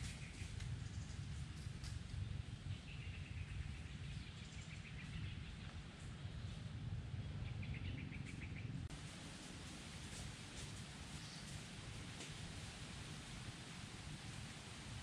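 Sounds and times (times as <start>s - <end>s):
faint hiss: 8.9s - 15.0s.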